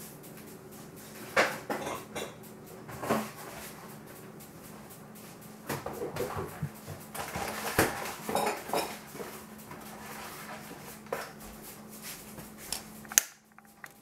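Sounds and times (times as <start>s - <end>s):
kitchen items clattering: 1.3s - 3.8s, 5.7s - 11.3s.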